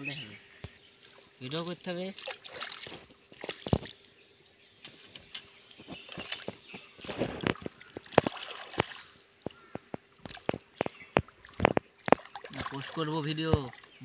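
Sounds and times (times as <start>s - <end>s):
water dripping: 0.6s - 14.0s
hands splashing in water: 2.1s - 4.0s, 4.8s - 14.0s.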